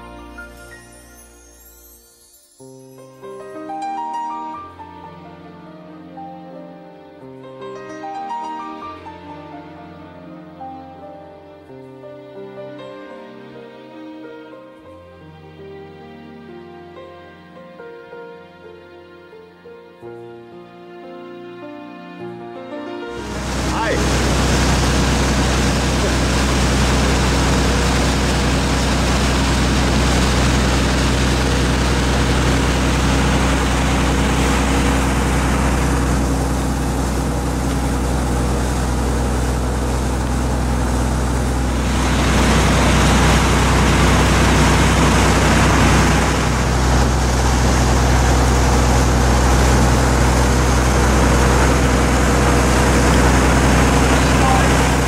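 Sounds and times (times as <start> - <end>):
ship engines humming: 23.2 - 55.0
water rushing in ship wake: 23.2 - 55.0.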